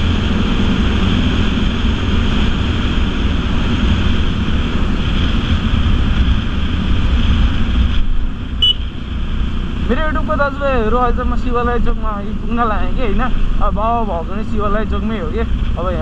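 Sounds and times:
motorcycle engine: 0.0s - 15.8s
road noise: 0.0s - 16.0s
wind rushing over microphone: 0.0s - 16.0s.

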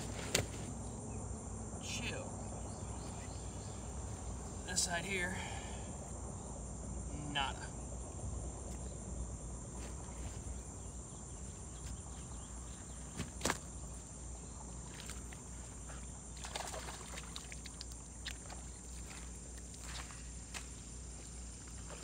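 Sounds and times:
water splashing at shoreline: 14.8s - 20.8s.

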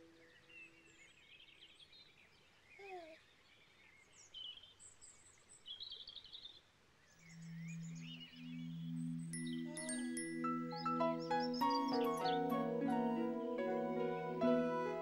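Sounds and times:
low sustained musical tone: 0.0s - 1.7s, 7.2s - 15.0s
birds chirping: 0.0s - 15.0s
chime tone: 8.3s - 15.0s.

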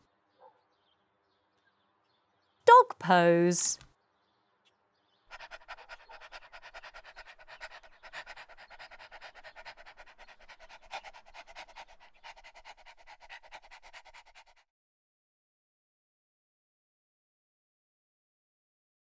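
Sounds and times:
dog panting: 5.3s - 14.7s.

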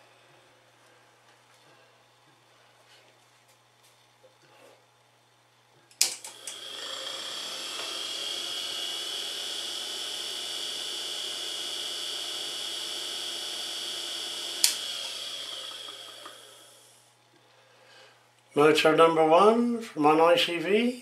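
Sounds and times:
motor high whine: 6.1s - 17.2s
motor switch click: 14.6s - 16.4s.

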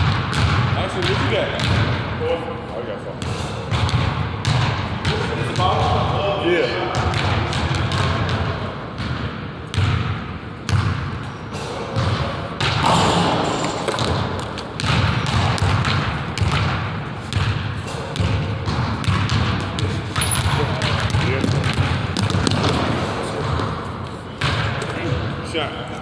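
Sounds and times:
basketball bouncing on wood floor: 0.0s - 2.0s, 3.7s - 6.0s, 7.0s - 11.3s, 12.0s - 23.8s.

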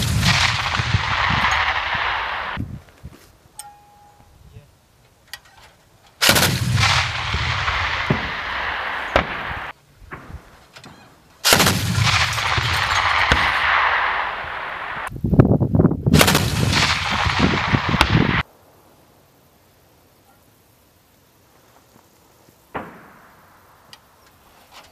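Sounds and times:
autocannon rapid fire bursts: 0.0s - 2.6s, 6.2s - 9.7s, 11.4s - 15.1s, 16.1s - 18.4s.

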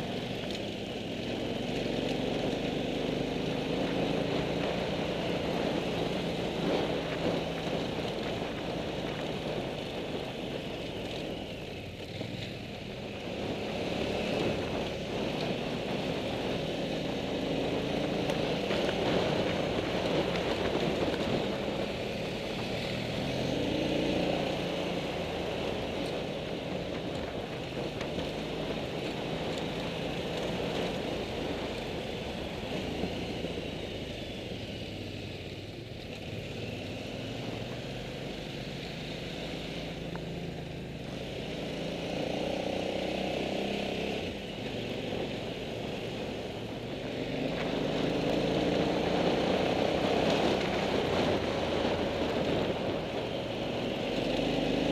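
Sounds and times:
motorcycle engine revving: 12.2s - 35.4s, 36.2s - 54.9s.

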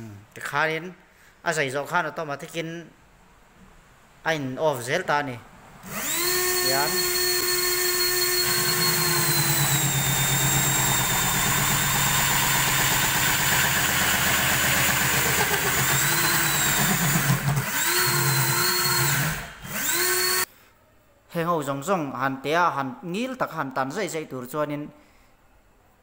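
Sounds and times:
saw blade cutting plastic pipe: 5.9s - 20.4s
electric saw motor whine: 5.9s - 20.5s.

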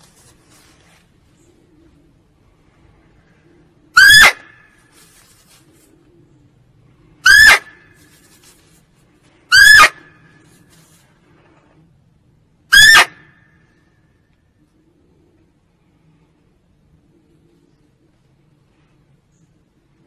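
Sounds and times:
deer barking: 4.0s - 4.7s, 7.2s - 7.8s, 9.5s - 10.2s, 12.7s - 13.3s.

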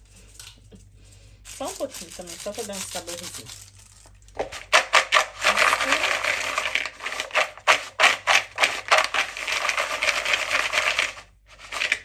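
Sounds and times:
potatoes clattering while tossed: 1.5s - 12.0s.

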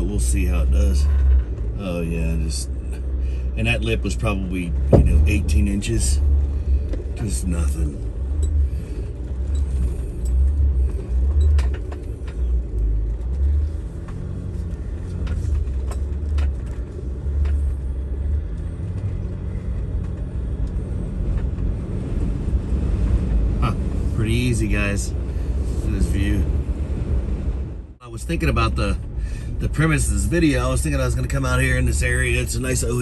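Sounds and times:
diesel engine running: 0.0s - 33.0s
wind rumble on microphone: 8.4s - 28.0s.

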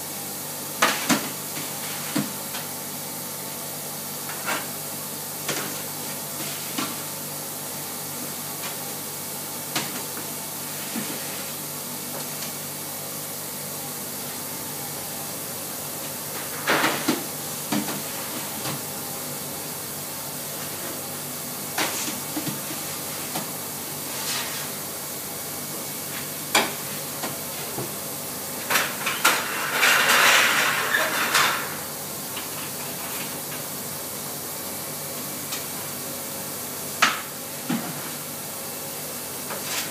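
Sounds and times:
ovens and extractor hum: 0.0s - 39.9s
metal baking trays clattering: 28.7s - 31.8s.

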